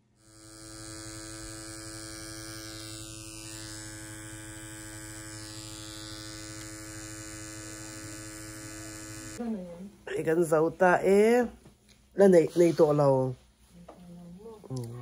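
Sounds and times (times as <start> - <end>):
makeup pen machine buzzing: 0.0 - 9.4.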